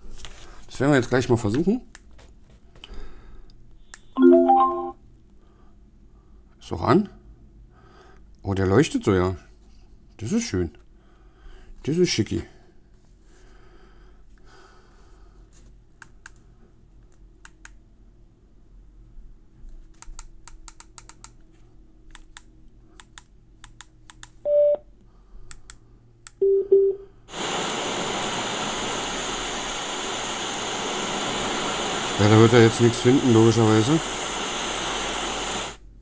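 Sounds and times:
short beeps: 4.0s - 5.0s, 24.5s - 24.8s, 26.4s - 27.0s
radio static hiss: 27.3s - 35.8s.

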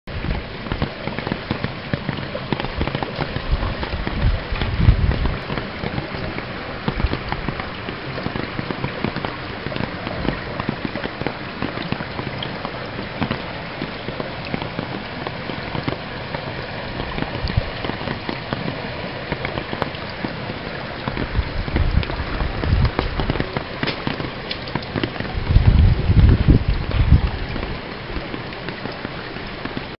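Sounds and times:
floodwater splashing: 0.1s - 29.9s
low bumps: 1.4s - 28.9s.

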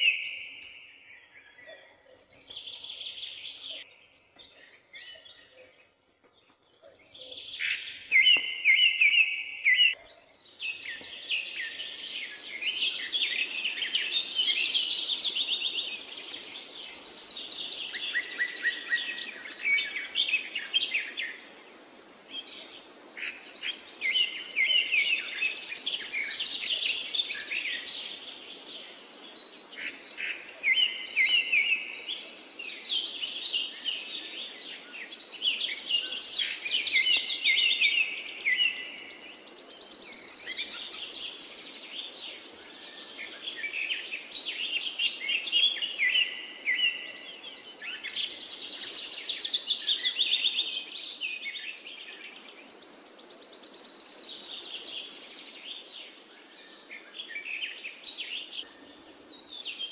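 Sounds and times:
birds chirping and trilling: 0.0s - 59.9s.

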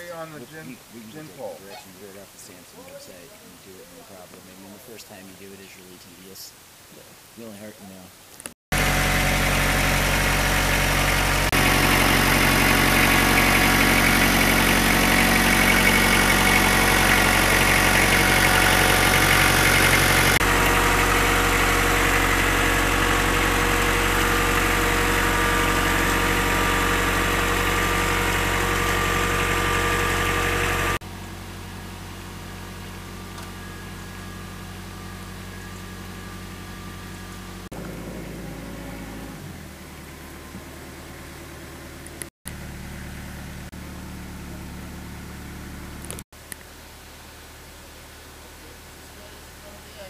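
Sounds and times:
tractor diesel engine droning: 8.7s - 46.2s.

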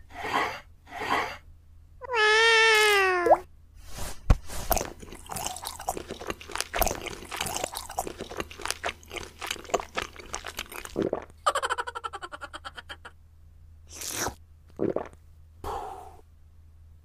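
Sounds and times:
crunching bites and chewing: 4.7s - 11.2s.

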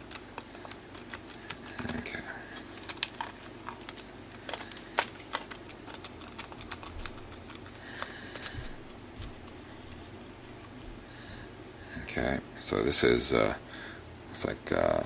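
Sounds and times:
plastic parts handled: 0.0s - 10.8s.

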